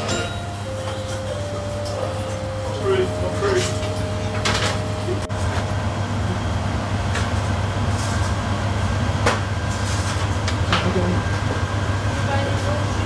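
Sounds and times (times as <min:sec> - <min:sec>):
pans and utensils clinking: 0:00.0 - 0:02.9.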